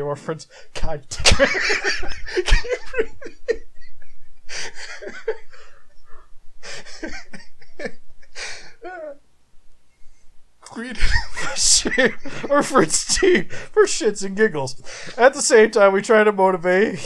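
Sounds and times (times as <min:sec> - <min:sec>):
men laughing hard: 0:01.1 - 0:09.2, 0:10.9 - 0:13.7.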